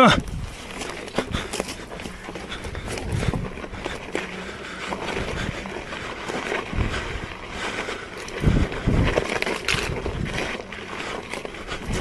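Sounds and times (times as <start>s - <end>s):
tyre crunching on stones: 0.0s - 12.0s.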